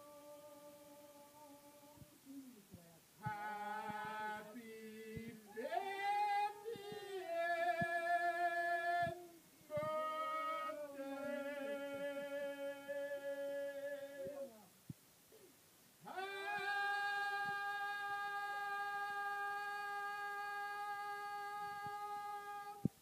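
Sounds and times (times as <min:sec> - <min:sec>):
group singing unaccompanied: 0:03.2 - 0:14.6, 0:16.0 - 0:23.0.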